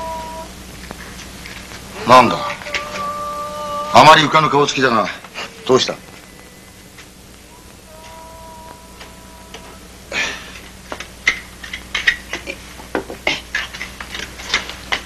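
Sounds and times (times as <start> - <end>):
faint held tones: 2.0 - 10.1.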